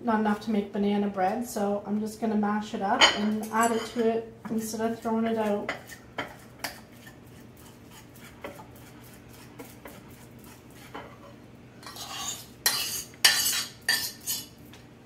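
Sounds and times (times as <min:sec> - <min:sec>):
fork mashing banana: 0:04.9 - 0:14.6
fork scraping and clinking on dishes: 0:05.7 - 0:14.6.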